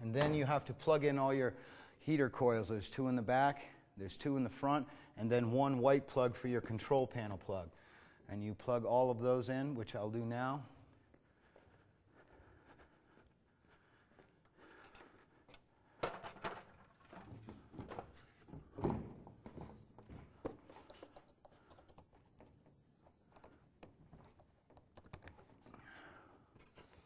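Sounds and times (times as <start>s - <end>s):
rubbing and rustling: 16.6s - 23.3s.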